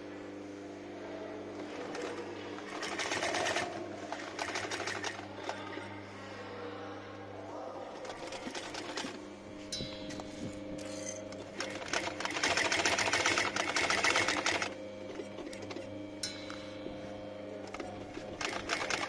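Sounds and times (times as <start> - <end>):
sewing machine stitching leather: 1.6 - 5.8, 11.4 - 15.8, 17.7 - 19.0.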